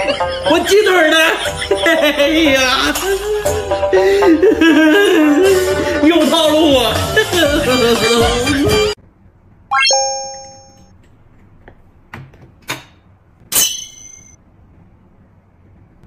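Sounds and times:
background music with singing: 1.4s - 9.0s
rising chime sound effect: 9.7s - 10.9s.

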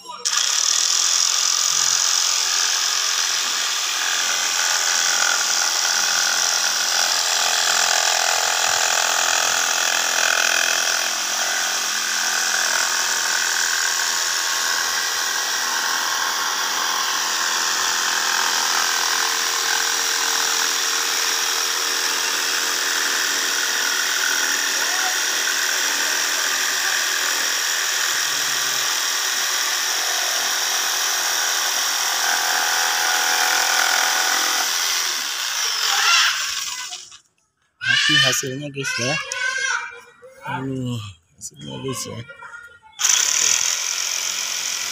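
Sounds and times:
jigsaw cutting wood: 0.2s - 39.5s, 43.0s - 44.9s.

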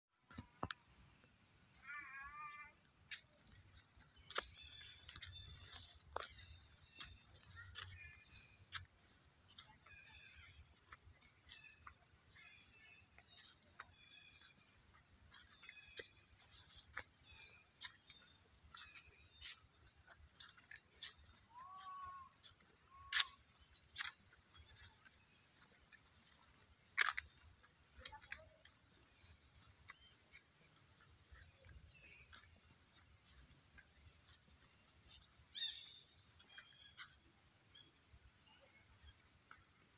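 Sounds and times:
small birds chirping: 0.3s - 39.9s
short calls: 21.5s - 24.1s.

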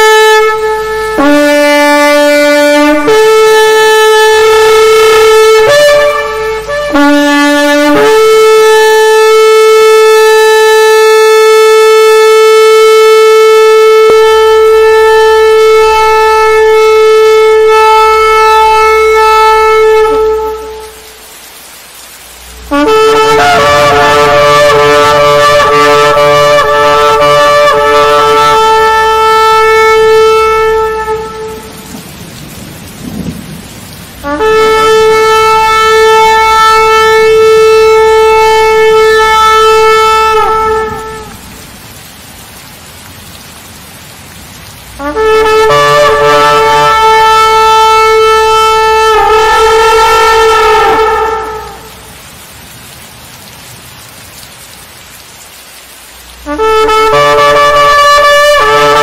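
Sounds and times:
ram's horn blasts: 0.0s - 21.3s, 22.4s - 32.0s, 34.1s - 41.7s, 44.8s - 52.1s, 56.2s - 59.0s
low rumbling noise: 22.2s - 42.1s.

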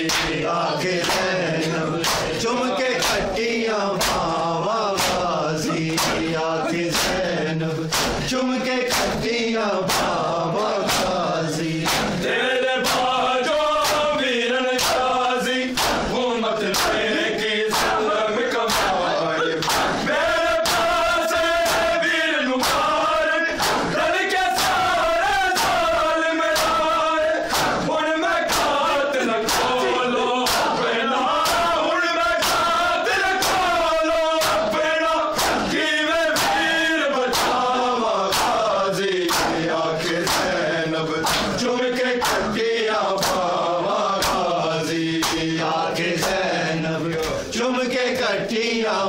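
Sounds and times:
hands slapping chests: 0.0s - 0.4s, 1.0s - 2.4s, 3.0s - 3.3s, 4.0s - 8.3s, 8.9s - 10.2s, 10.8s - 11.2s, 11.8s - 12.2s, 12.8s - 13.2s, 13.8s - 14.1s, 14.8s - 15.1s, 15.7s - 16.1s, 16.7s - 17.0s, 17.7s - 18.1s, 18.7s - 19.0s, 19.6s - 20.0s, 20.6s - 22.0s, 22.6s - 27.9s, 28.5s - 28.8s, 29.4s - 29.8s, 30.4s - 30.8s, 31.4s - 34.7s, 35.3s - 37.7s, 38.3s - 40.6s, 41.2s - 41.6s, 42.2s - 42.6s, 43.2s - 43.6s, 44.2s - 44.5s, 45.2s - 45.5s
men chanting in unison: 0.0s - 49.0s.

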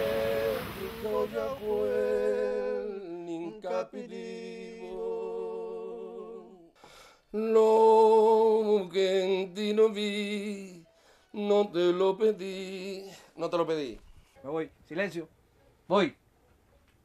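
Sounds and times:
man singing unaccompanied: 0.0s - 6.7s, 7.3s - 13.5s.

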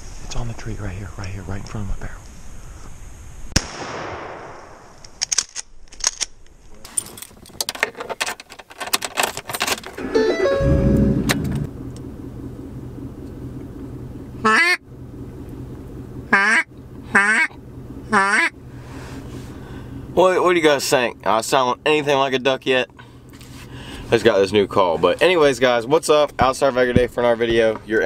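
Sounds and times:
pickup truck engine idling: 9.9s - 27.6s
duck call quacking: 14.4s - 14.8s, 16.3s - 18.6s.

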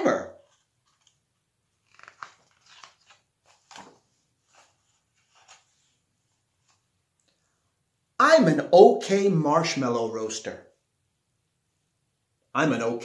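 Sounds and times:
book pages turning: 0.4s - 7.0s.

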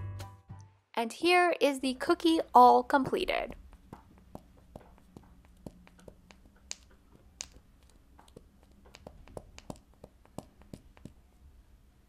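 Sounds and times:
plastic googly eye clicking: 3.5s - 11.2s.

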